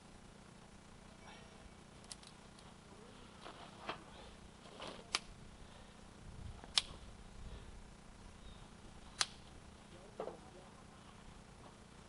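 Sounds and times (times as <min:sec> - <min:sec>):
faint low rumble: 0:00.0 - 0:12.0
short sharp clicks: 0:09.2 - 0:09.4.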